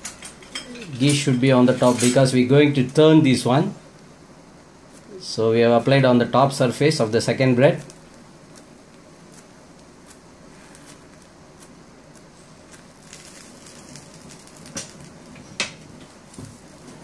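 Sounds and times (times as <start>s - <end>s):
wooden spatula brushing: 4.8s - 5.1s, 7.7s - 15.1s
bread sizzling in a pan: 6.5s - 17.0s.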